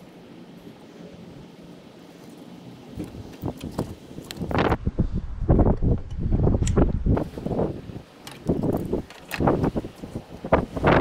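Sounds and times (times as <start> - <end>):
wind buffeting microphone: 2.7 - 11.0.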